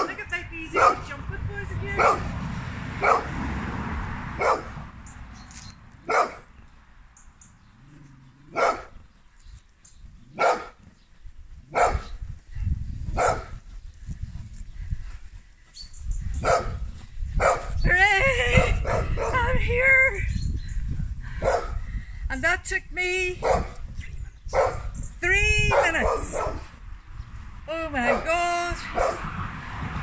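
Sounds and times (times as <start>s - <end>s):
dog barking: 0.8s - 1.1s, 2.0s - 2.3s, 3.0s - 3.4s, 4.4s - 4.8s, 6.0s - 6.5s, 8.5s - 9.0s, 10.3s - 10.8s, 11.7s - 12.2s, 13.1s - 13.6s, 16.4s - 16.8s, 17.4s - 17.8s, 18.6s - 19.4s, 21.4s - 21.8s, 23.4s - 23.8s, 24.5s - 24.9s, 25.7s - 26.7s, 28.9s - 29.3s.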